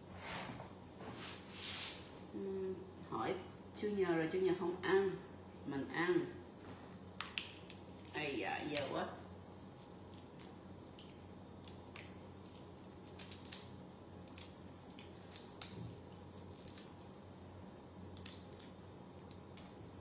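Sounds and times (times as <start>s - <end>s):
faint low hum: 0.0s - 20.0s
shrimp shells cracking: 10.2s - 17.0s, 18.1s - 19.8s.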